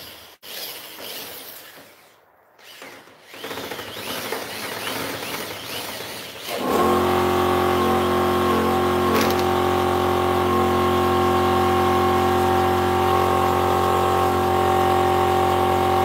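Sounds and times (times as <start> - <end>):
electric drill whirring: 0.0 - 16.0
loud steady motor hum: 5.6 - 16.0.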